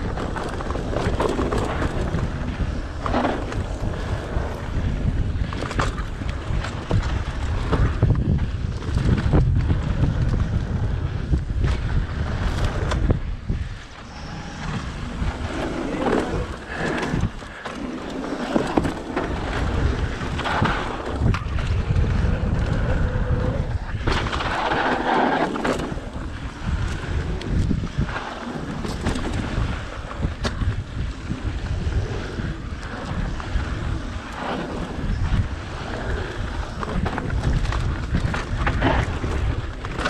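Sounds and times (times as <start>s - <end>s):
bike rattling and knocking: 0.0s - 13.6s
tyres rumbling on dirt: 0.0s - 40.0s
wind buffeting microphone: 0.0s - 40.0s.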